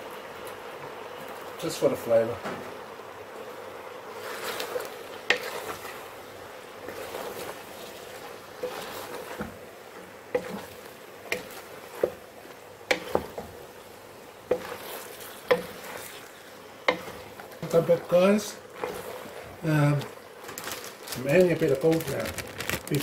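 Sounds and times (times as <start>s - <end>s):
wooden spoon stirring food in pot: 2.8s - 23.0s
spoon knocking against pot: 12.9s - 13.5s.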